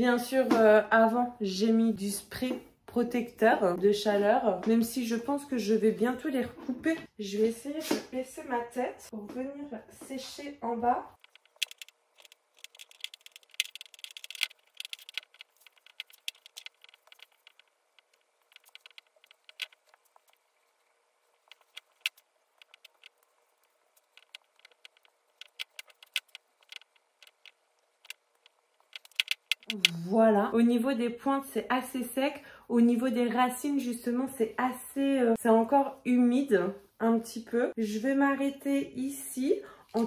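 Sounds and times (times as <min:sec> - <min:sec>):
sharp clicks: 0:11.2 - 0:19.9, 0:24.0 - 0:30.0
hair crackling and rustling: 0:11.2 - 0:30.0.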